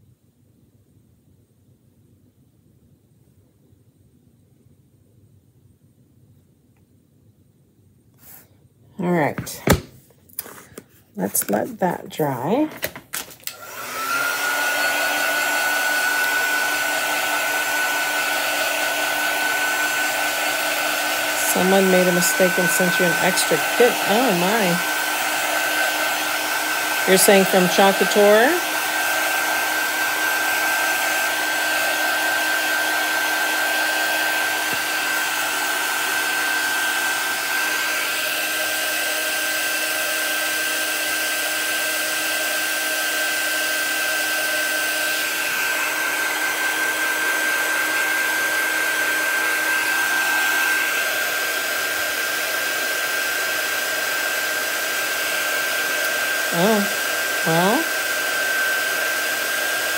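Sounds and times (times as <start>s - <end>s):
heat gun blowing whir: 12.5s - 59.9s.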